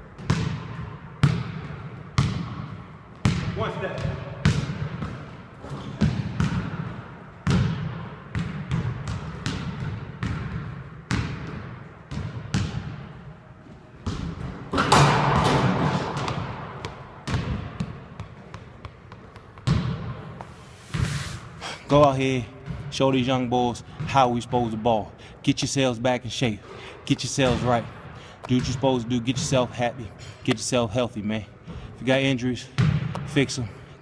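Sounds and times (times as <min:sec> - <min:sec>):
basketball bouncing on wooden floor: 0:00.2 - 0:13.0, 0:14.0 - 0:20.5.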